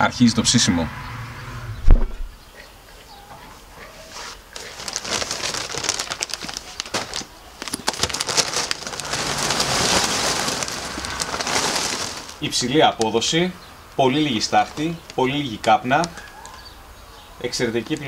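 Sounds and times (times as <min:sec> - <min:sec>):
charcoal sack rustling: 0:04.2 - 0:13.3, 0:14.2 - 0:16.2
charcoal pouring and clattering: 0:04.7 - 0:13.1.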